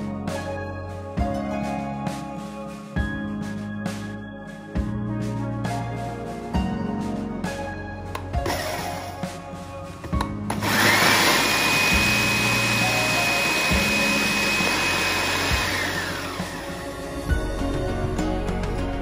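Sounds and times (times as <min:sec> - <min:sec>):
background music: 0:00.0 - 0:19.0
food processor motor whining: 0:10.5 - 0:16.9.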